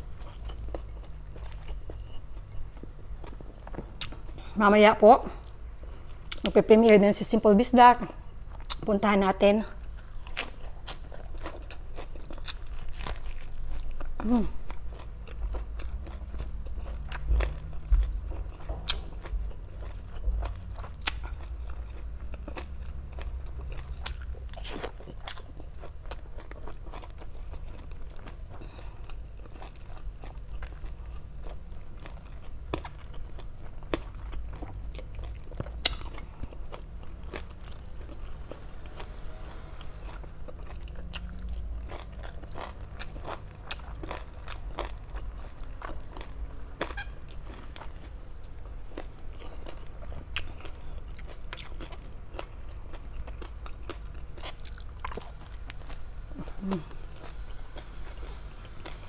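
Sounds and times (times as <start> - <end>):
low steady rumble: 0.0 - 59.0
crunchy bites and chewing: 9.8 - 48.2, 48.9 - 59.0.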